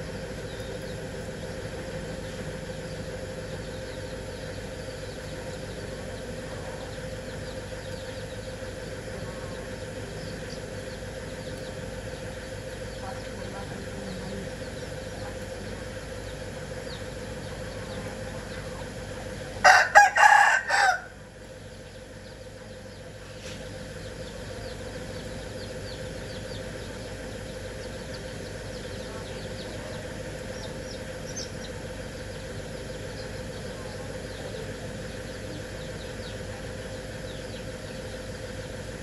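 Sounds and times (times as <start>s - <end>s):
steady background hum: 0.0s - 39.0s
rooster crowing: 19.6s - 21.3s.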